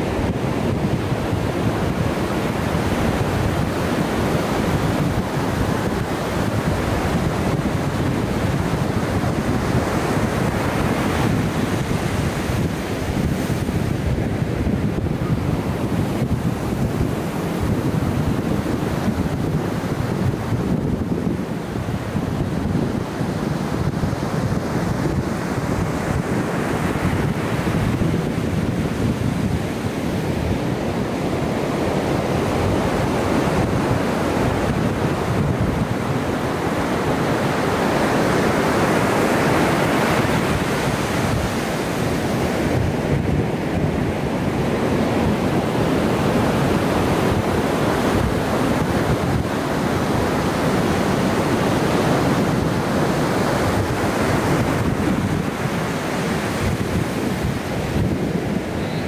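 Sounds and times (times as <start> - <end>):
ocean surf breaking: 0.0 - 59.0
wind buffeting microphone: 0.0 - 59.0.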